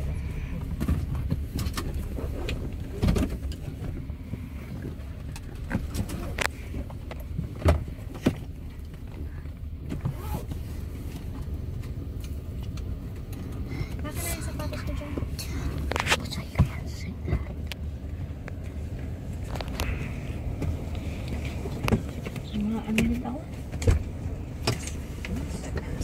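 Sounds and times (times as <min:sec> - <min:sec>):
jet engines rumbling overhead: 0:10.5 - 0:26.0.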